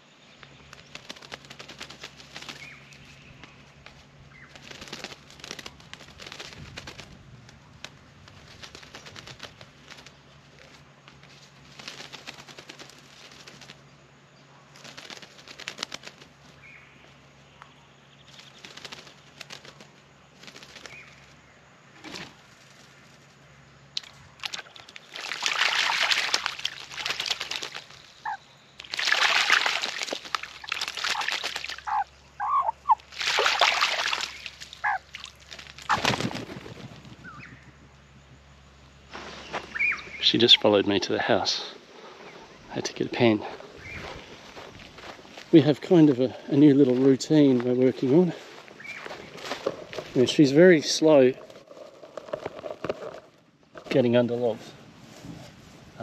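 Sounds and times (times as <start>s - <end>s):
bird splashing water with wings: 0.7s - 2.8s, 4.5s - 7.1s, 11.7s - 13.8s, 14.8s - 16.4s, 18.5s - 21.1s, 24.0s - 32.1s, 32.8s - 36.9s.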